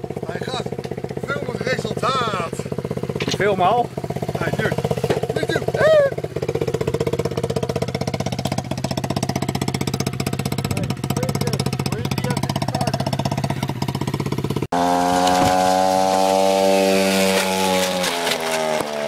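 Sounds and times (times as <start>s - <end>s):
motorbike engine idling: 0.0s - 14.7s
motorbike engine at high revs: 0.0s - 19.0s.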